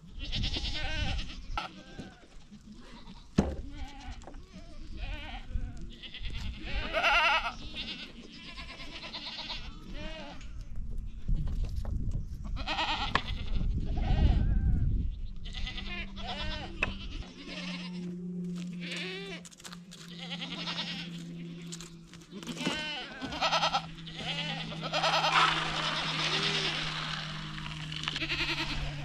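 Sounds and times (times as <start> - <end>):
goats bleating: 0.1 - 10.7, 12.6 - 14.8, 15.4 - 29.0
steady low hum: 15.9 - 29.0.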